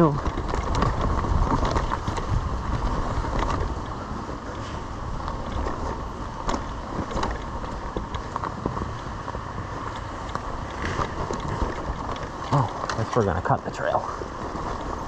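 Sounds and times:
dirt bike knocking and rattling: 0:00.0 - 0:15.0
tyres rolling over rocky dirt: 0:00.0 - 0:15.0.

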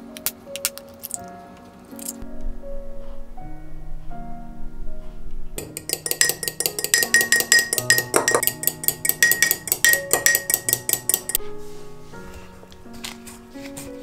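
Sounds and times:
background music: 0:00.0 - 0:14.0
spoon clinking against glass: 0:05.6 - 0:11.4.

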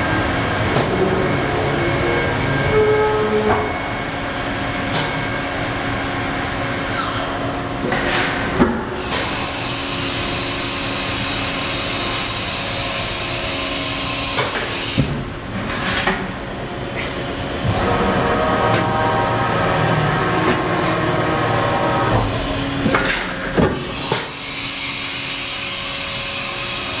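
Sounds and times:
high multi-tone whine: 0:00.0 - 0:07.9
machining center humming: 0:00.0 - 0:27.0.

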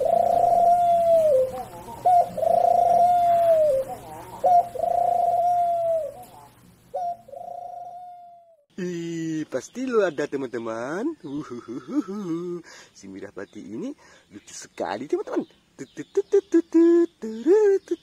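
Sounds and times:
pigeon cooing: 0:00.0 - 0:08.6.

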